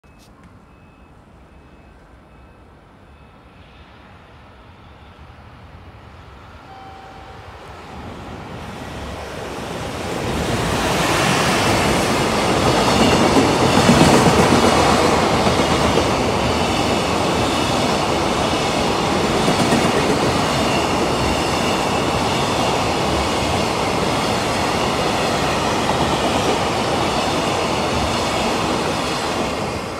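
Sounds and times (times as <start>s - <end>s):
train wheels on rails: 7.6s - 29.9s.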